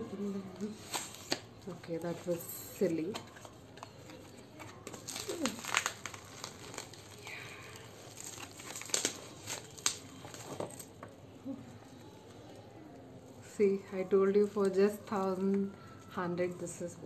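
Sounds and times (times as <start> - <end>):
bubble wrap crinkling: 0.0 - 13.0.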